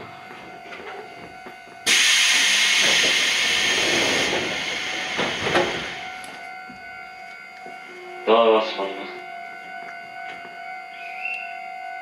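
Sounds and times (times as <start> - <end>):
compressed air hiss: 1.9 - 6.0.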